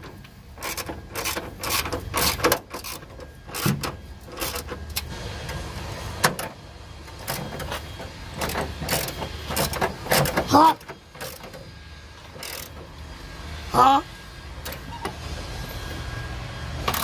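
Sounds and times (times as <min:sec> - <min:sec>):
ratchet wrench clicking: 0:00.6 - 0:05.1, 0:08.4 - 0:10.4, 0:12.3 - 0:12.8.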